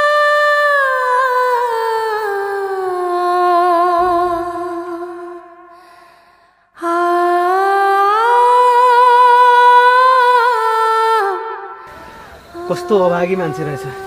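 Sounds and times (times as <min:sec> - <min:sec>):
person humming: 0:11.9 - 0:14.0.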